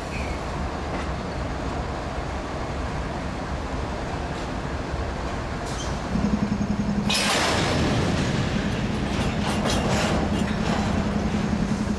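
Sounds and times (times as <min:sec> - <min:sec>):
locomotive engine drone: 0:00.0 - 0:11.9.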